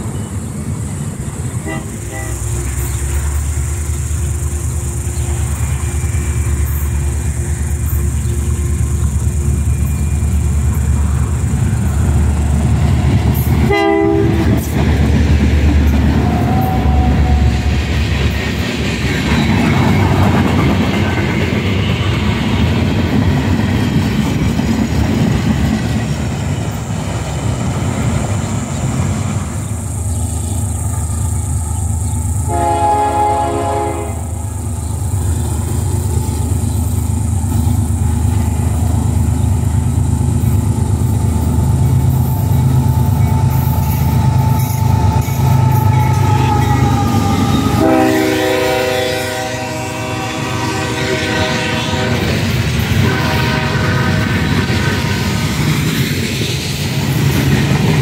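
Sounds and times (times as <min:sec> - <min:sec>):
diesel locomotives rumbling: 0:00.0 - 0:58.0
locomotive horn blast: 0:01.6 - 0:02.9, 0:13.6 - 0:14.7, 0:32.4 - 0:34.5, 0:42.3 - 0:55.6.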